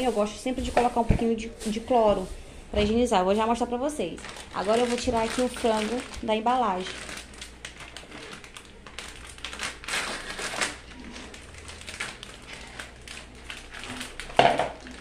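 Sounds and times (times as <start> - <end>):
plastic packaging crinkling: 3.4 - 15.0.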